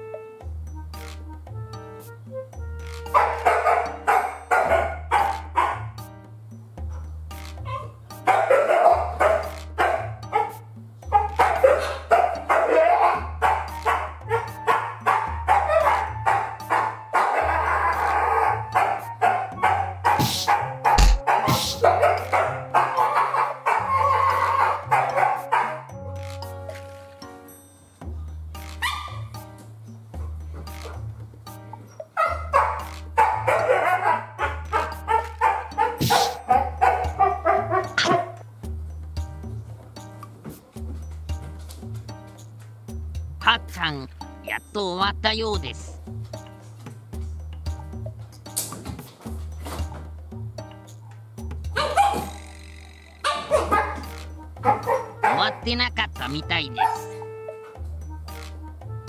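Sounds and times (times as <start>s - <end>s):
background music with bass line: 0.0s - 27.4s, 28.0s - 59.0s
dog barking: 3.1s - 6.0s, 7.7s - 25.9s, 28.8s - 29.3s, 32.2s - 38.4s, 51.8s - 52.4s, 53.2s - 55.8s, 56.7s - 57.3s.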